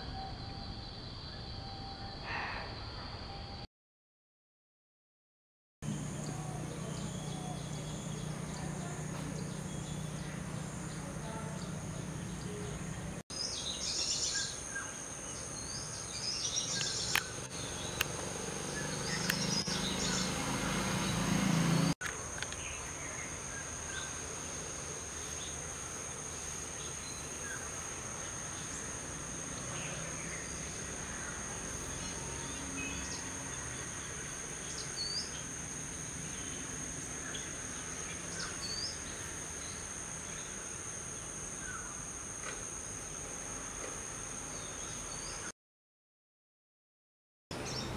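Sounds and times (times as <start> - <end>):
low hum: 5.8 - 13.2
bird chirps: 6.1 - 21.2.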